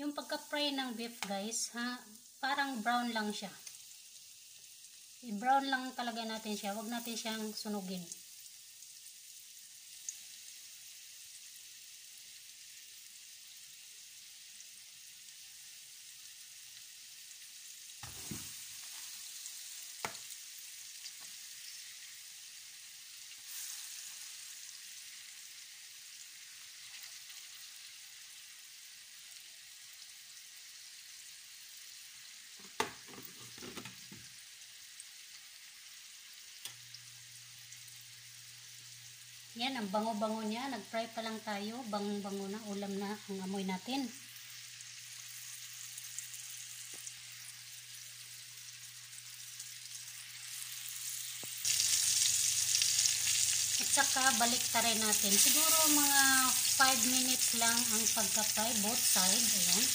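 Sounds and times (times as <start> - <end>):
beef sizzling in oil: 0.0 - 59.9
light knocks in pan: 18.0 - 18.6, 32.6 - 34.3.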